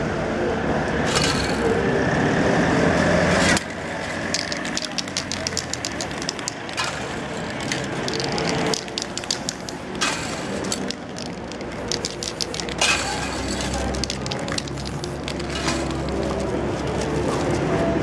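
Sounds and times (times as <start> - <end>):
quick clicks: 4.3 - 16.5
spray paint can hissing: 4.3 - 17.0.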